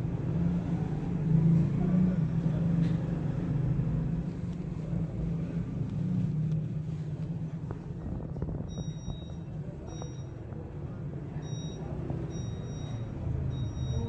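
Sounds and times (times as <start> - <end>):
low background rumble: 3.8 - 14.0
faint high-pitched beeps: 8.7 - 10.4, 11.4 - 14.0.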